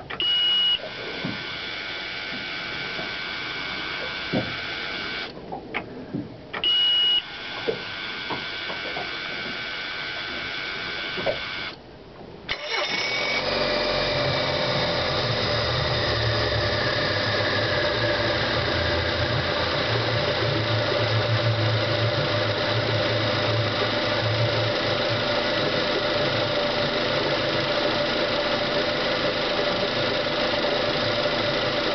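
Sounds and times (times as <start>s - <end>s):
outboard motor starting and idling: 0.0s - 5.9s, 6.6s - 11.8s, 12.5s - 31.9s
short high beep: 0.2s - 0.8s, 6.6s - 7.3s
low hum: 12.5s - 31.9s.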